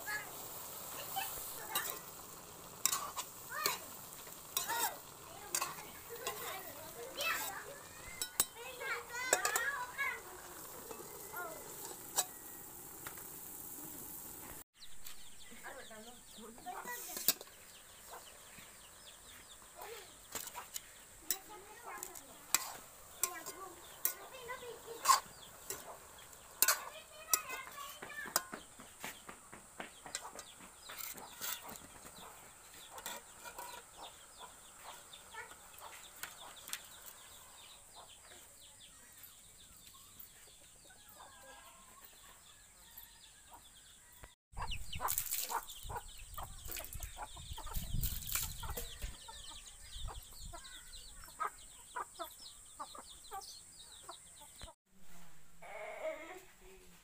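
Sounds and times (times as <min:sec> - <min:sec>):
chickens clucking: 0:00.1 - 0:12.6, 0:16.4 - 0:38.7, 0:43.5 - 0:54.8
ladle scraping a wok: 0:00.2 - 0:14.4, 0:16.8 - 0:18.8, 0:20.0 - 0:28.5, 0:30.2 - 0:37.3.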